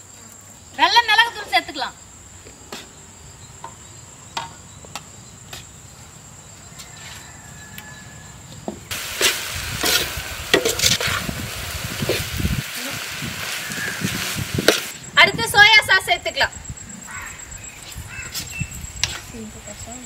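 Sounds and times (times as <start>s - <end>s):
high insect drone: 0.0s - 20.0s
metal ladle scraping in a wok: 9.0s - 11.3s.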